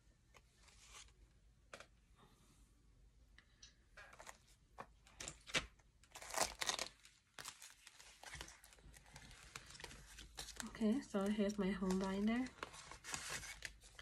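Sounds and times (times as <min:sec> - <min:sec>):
paper and plastic rustling: 0:04.1 - 0:14.0.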